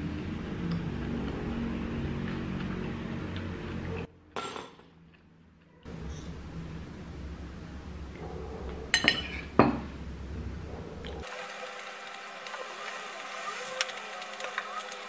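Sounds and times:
steady low hum: 0:05.9 - 0:11.3.

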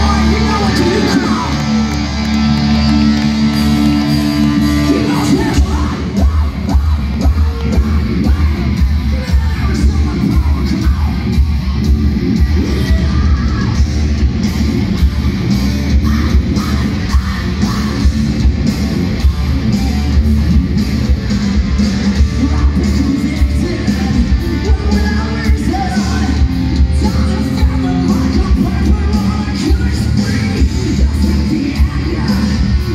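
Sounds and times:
distorted electric guitar: 0:00.0 - 0:32.9
drums: 0:00.0 - 0:32.9
electric bass: 0:00.0 - 0:32.9
hard rock band playing: 0:00.0 - 0:32.9
rock vocals: 0:00.0 - 0:32.9.

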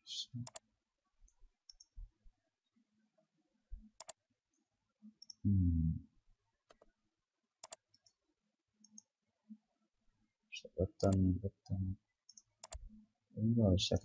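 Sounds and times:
computer mouse clicks: 0:00.4 - 0:00.7, 0:01.3 - 0:02.0, 0:03.9 - 0:04.2, 0:05.2 - 0:05.4, 0:06.7 - 0:06.9, 0:07.6 - 0:08.2, 0:08.8 - 0:09.1, 0:12.3 - 0:12.9.

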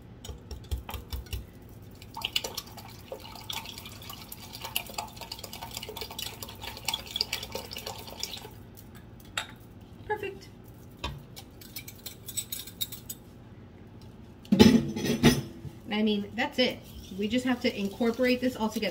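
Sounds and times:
whisk beating eggs in glass: 0:00.3 - 0:08.5.

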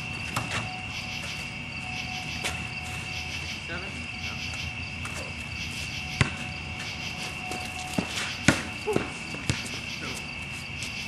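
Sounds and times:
crickets trilling: 0:00.0 - 0:11.0
basketball bouncing: 0:06.1 - 0:06.9, 0:07.5 - 0:09.8.

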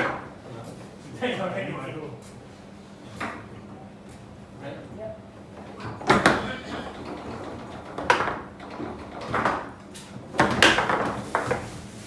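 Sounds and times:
foosball ball knocks and clacks: 0:00.0 - 0:00.3, 0:05.5 - 0:11.8.

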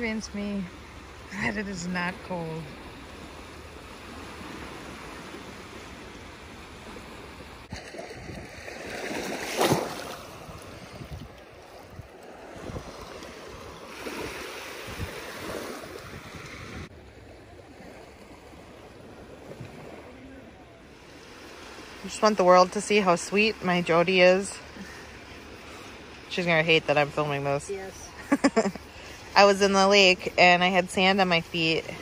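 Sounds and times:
waves lapping on sandy shore: 0:00.0 - 0:32.0
wind on microphone: 0:07.6 - 0:16.9.

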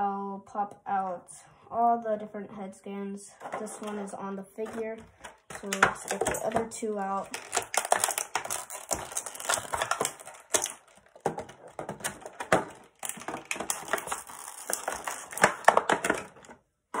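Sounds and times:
plastic packaging crinkling: 0:04.6 - 0:16.6.

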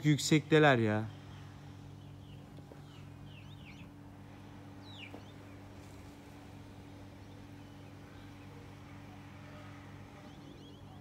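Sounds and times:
small birds chirping: 0:00.0 - 0:11.0
steady low hum: 0:00.0 - 0:11.0.

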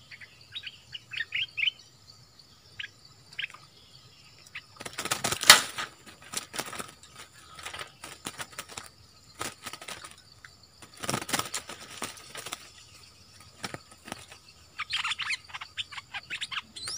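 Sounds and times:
bird wing flaps: 0:04.8 - 0:10.2, 0:10.8 - 0:14.6.

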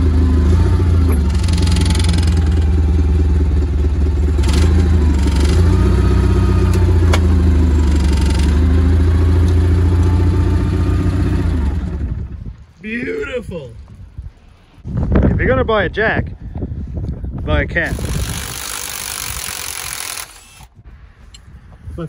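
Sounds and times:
forklift engine humming: 0:00.0 - 0:14.8.

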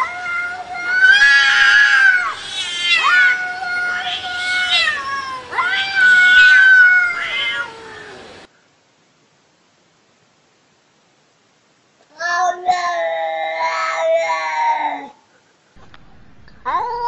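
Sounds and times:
cats yowling: 0:00.0 - 0:08.5, 0:12.2 - 0:15.2.

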